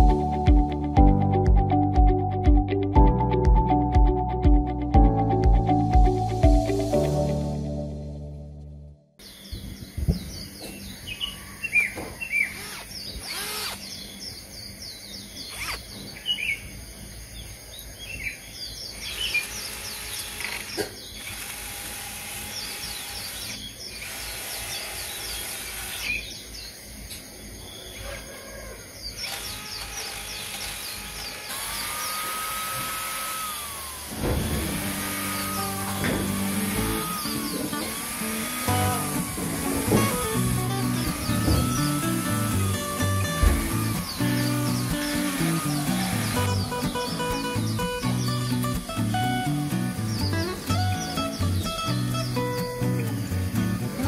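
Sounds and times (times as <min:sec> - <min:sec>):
small birds chirping: 0:09.2 - 0:54.0
electric drill whining: 0:12.4 - 0:13.9, 0:19.2 - 0:26.3, 0:29.2 - 0:48.3
knocks: 0:43.3 - 0:44.1.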